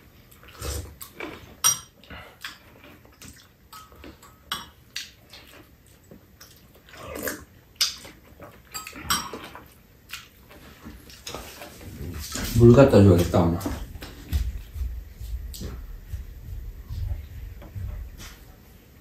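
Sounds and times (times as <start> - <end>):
chewing and sipping: 0.0 - 12.6.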